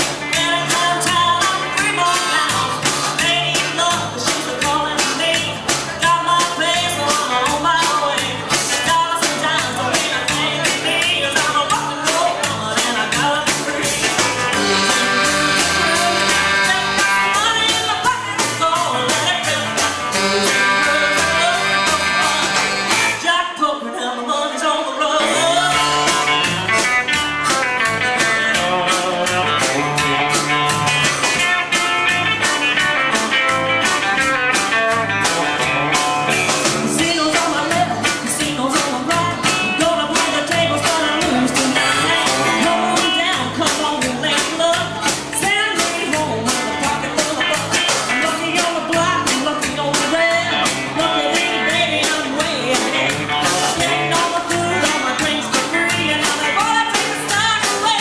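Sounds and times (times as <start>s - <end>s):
drums with cymbal beat: 0.0s - 23.3s, 25.2s - 58.0s
female lead vocal: 0.0s - 26.9s, 36.6s - 58.0s
electric guitar: 0.0s - 58.0s
harmonica: 13.9s - 23.3s, 25.2s - 31.2s, 41.3s - 43.1s.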